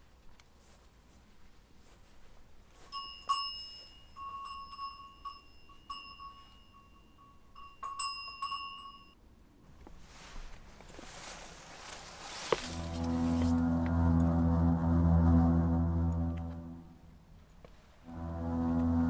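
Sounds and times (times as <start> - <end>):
small bell ringing: 2.8 - 9.2.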